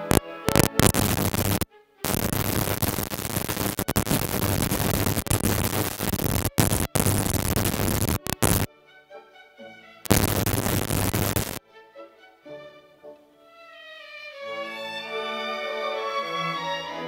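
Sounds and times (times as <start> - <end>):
static hiss: 0.0 - 8.7, 10.1 - 11.6.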